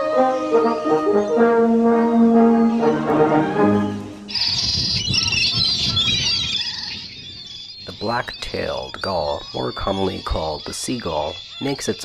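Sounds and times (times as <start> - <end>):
music of held notes: 0.0 - 4.4
gulls calling: 0.0 - 12.0.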